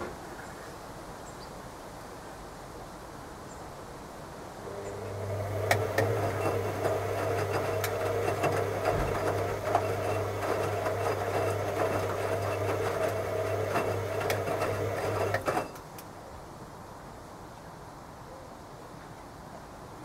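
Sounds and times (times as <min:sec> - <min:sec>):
washing machine motor hum: 0:04.6 - 0:15.8
washing machine clicks: 0:04.8 - 0:15.8
laundry shifting in drum: 0:04.9 - 0:15.8.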